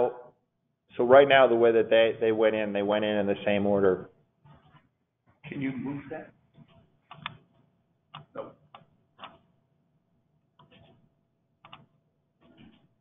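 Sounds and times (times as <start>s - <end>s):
keyboard and mouse clicks: 6.6s - 7.5s, 8.1s - 9.5s, 10.6s - 11.0s, 11.6s - 12.9s.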